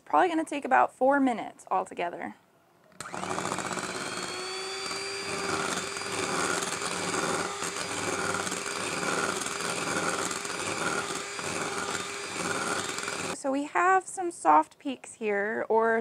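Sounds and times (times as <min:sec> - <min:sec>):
electric mixer motor whine: 0:03.0 - 0:13.4.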